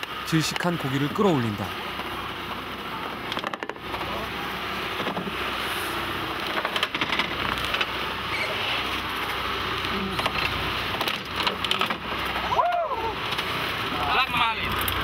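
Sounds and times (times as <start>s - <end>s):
sea: 0.0s - 15.0s
wind: 0.0s - 15.0s.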